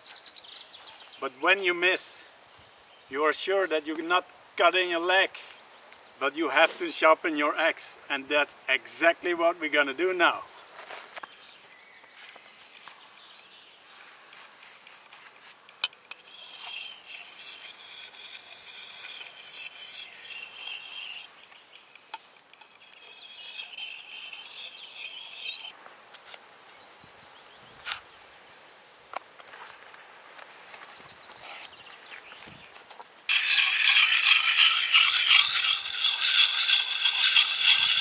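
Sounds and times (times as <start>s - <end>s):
sharpening stone scraping axe blade: 15.8s - 25.8s, 33.3s - 38.0s.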